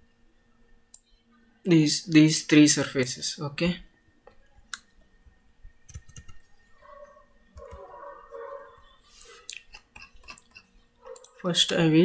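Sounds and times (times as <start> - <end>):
computer mouse clicking: 5.8 - 6.6, 7.6 - 7.9, 9.1 - 11.8.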